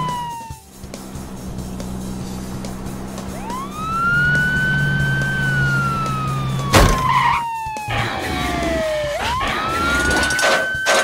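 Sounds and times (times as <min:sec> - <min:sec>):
police siren wailing: 0:00.0 - 0:11.0
loud sudden bang: 0:06.7 - 0:07.2.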